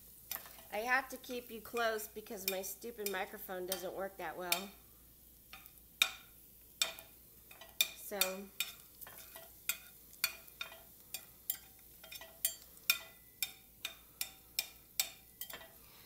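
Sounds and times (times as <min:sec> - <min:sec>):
garlic sizzling in oil: 0:00.0 - 0:16.0
metal spatula tapping a skillet: 0:00.3 - 0:04.8, 0:05.5 - 0:15.8.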